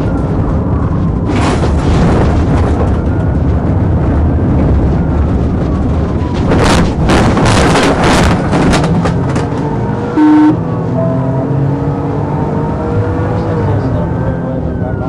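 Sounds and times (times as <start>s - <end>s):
car engine and road noise: 0.0s - 15.0s
faint siren: 2.8s - 7.7s, 9.9s - 15.0s.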